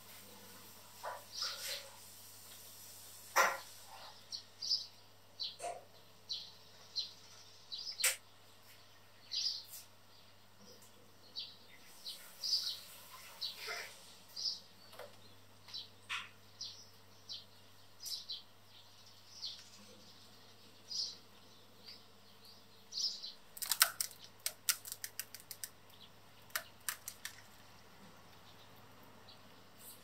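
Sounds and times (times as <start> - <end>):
sharp clicks: 23.6 - 25.8, 26.5 - 27.5.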